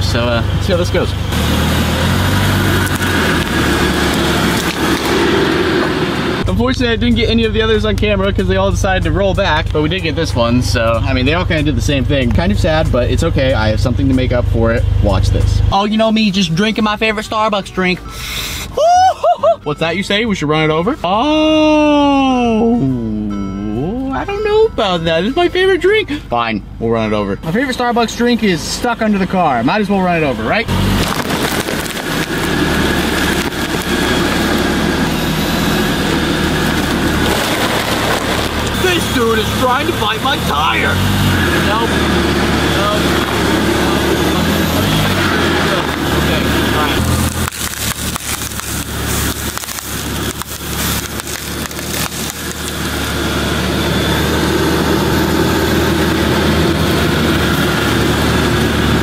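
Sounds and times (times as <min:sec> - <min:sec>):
car engine running: 0:00.0 - 0:18.8, 0:19.8 - 0:59.0
tire crushing foam bricks: 0:01.3 - 0:06.4, 0:29.8 - 0:55.3
cardboard crackling: 0:30.7 - 0:34.7, 0:36.2 - 0:40.4, 0:45.7 - 0:53.2.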